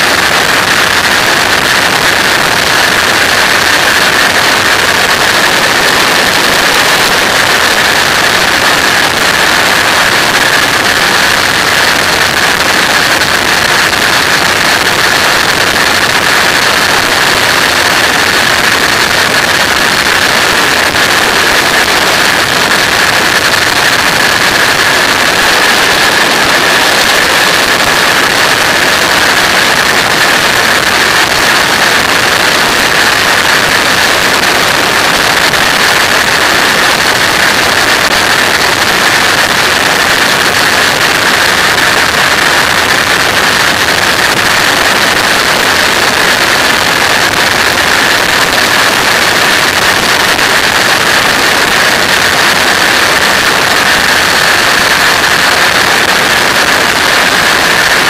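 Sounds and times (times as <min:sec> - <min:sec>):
aircraft engine drone: 0:00.0 - 0:46.0
constant high-pitched tone: 0:00.0 - 0:50.4.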